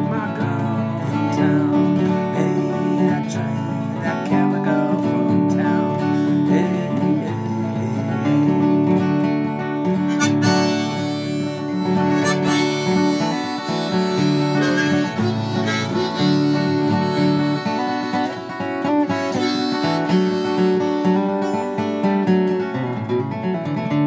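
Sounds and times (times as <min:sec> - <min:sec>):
acoustic guitar picking: 0:00.0 - 0:24.0
harmonica playing long notes: 0:09.9 - 0:21.7.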